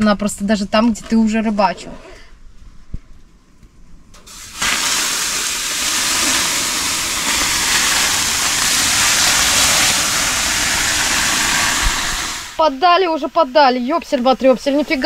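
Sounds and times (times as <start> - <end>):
water hissing on hot stones: 4.2 - 15.0.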